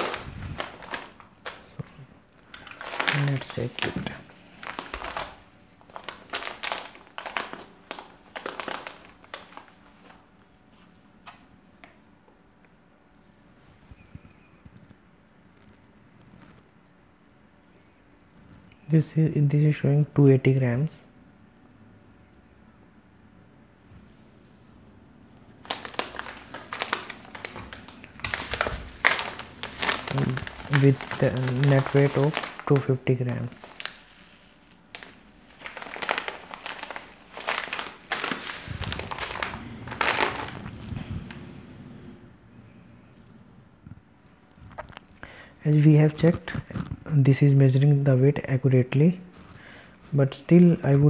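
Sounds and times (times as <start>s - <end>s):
foil packet crinkling: 0.0s - 10.3s, 25.5s - 41.4s.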